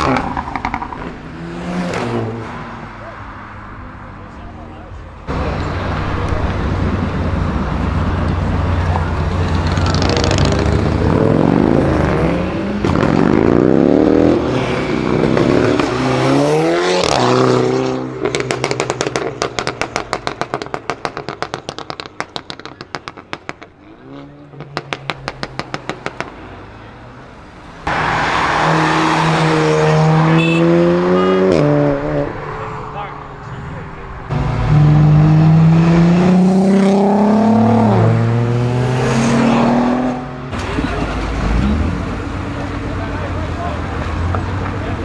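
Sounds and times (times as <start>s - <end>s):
second car accelerating loudly: 5.3s - 21.0s, 27.9s - 32.8s, 34.2s - 43.0s
car engine accelerating hard: 34.3s - 45.0s.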